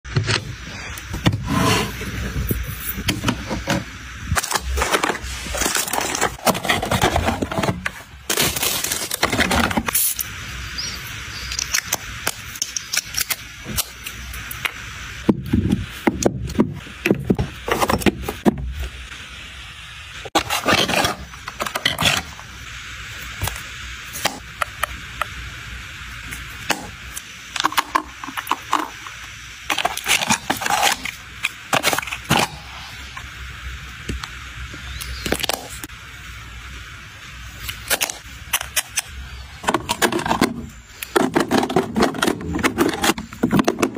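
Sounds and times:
plastic wrap crinkling: 4.4s - 10.3s.

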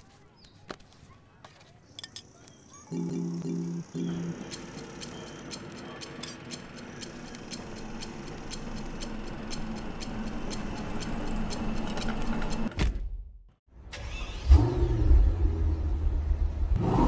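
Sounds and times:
clock ticking: 2.9s - 12.7s.

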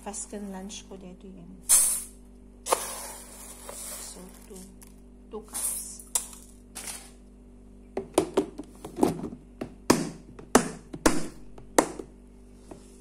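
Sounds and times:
plastic and metal knocks: 8.0s - 12.1s.

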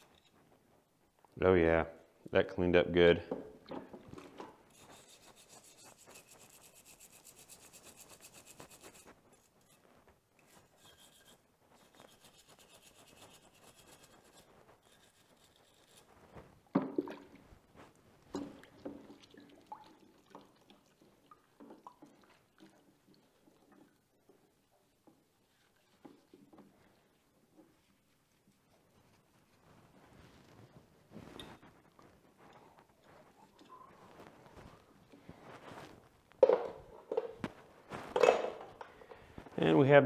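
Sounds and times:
stiff brush scrubbing metal: 4.7s - 9.9s, 10.5s - 16.2s.

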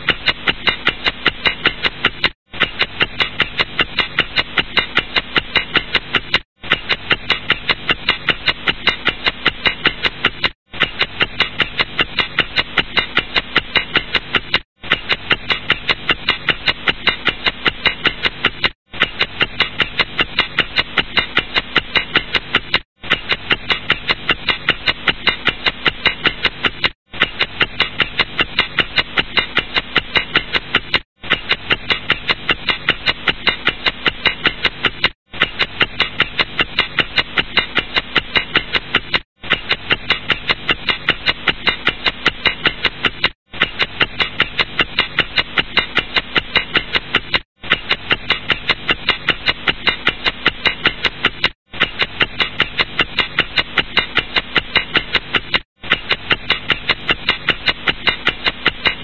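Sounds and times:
clock ticking: 0.0s - 59.0s.

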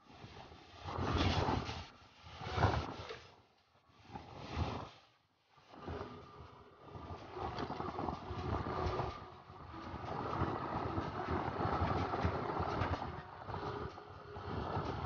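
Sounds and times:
wind buffeting microphone: 5.8s - 15.0s.

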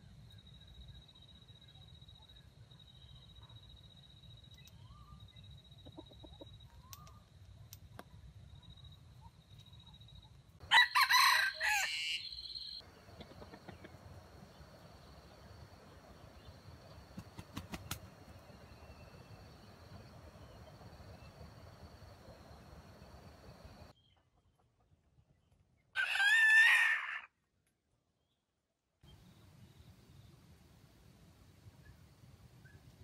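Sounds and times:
rooster crowing: 10.6s - 12.8s, 26.0s - 27.3s.

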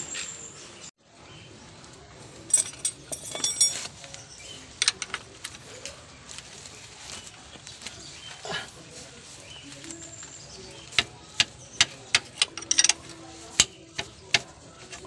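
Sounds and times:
metal wrenches clinking: 2.4s - 5.6s, 10.2s - 15.0s
metallic ring: 2.5s - 3.9s.

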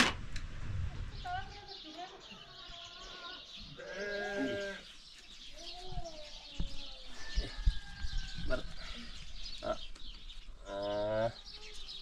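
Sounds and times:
sheep bleating: 3.8s - 4.8s.

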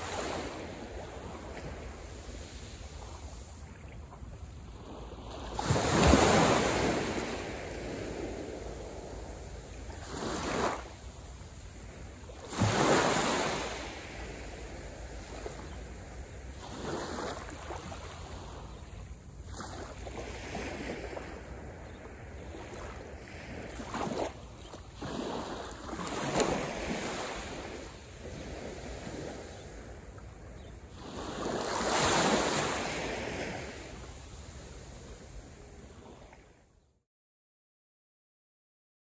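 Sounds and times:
small waves breaking on beach: 0.0s - 36.7s.

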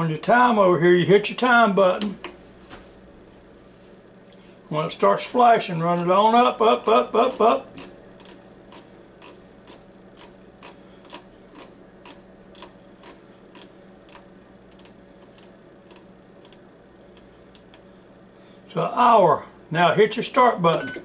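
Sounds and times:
rotary dial clicking: 5.9s - 17.8s.

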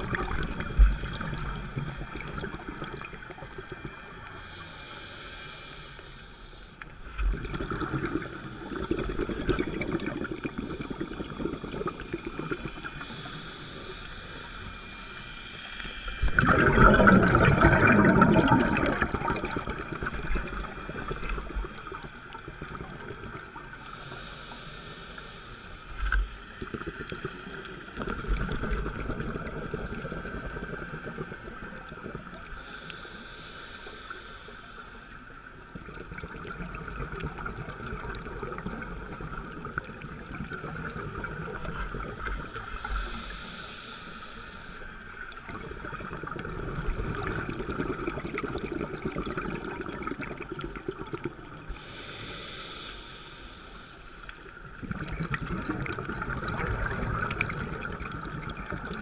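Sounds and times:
low rumble of exhaled bubbles: 0.0s - 4.2s, 7.0s - 13.1s, 15.8s - 23.8s, 26.6s - 32.7s, 45.3s - 51.7s, 54.6s - 59.0s
muffled water noise: 0.0s - 59.0s
regulator hissing inhalations: 4.3s - 6.9s, 12.9s - 16.2s, 23.8s - 26.2s, 32.5s - 35.4s, 42.7s - 45.3s, 51.6s - 54.6s.

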